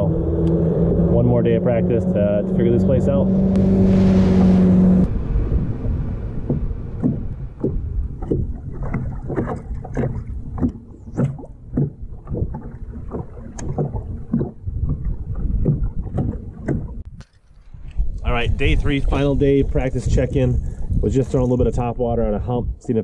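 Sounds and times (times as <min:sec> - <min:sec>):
wind rumble on microphone: 0:00.0 - 0:23.0
waves slapping against boat hull: 0:03.5 - 0:21.9.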